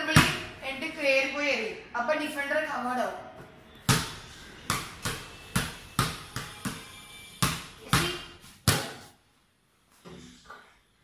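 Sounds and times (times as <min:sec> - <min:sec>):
basketball bouncing on hard floor: 0:00.1 - 0:00.5, 0:03.8 - 0:09.1.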